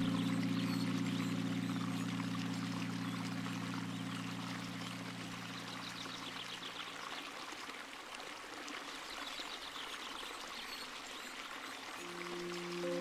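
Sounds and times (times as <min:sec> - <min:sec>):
soft music pad: 0:00.0 - 0:07.0, 0:11.2 - 0:13.0
stream trickling and rushing: 0:00.0 - 0:13.0.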